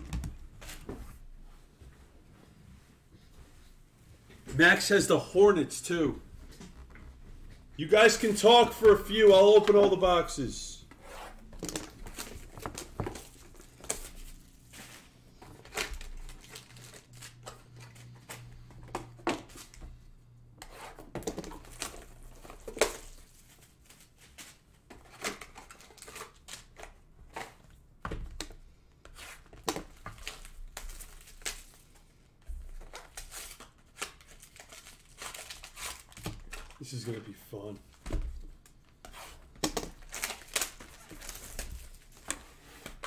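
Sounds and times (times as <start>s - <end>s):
plastic wrap tearing and crinkling: 11.6s - 18.5s, 21.5s - 27.1s, 29.3s - 31.9s, 32.7s - 37.1s, 38.6s - 43.0s.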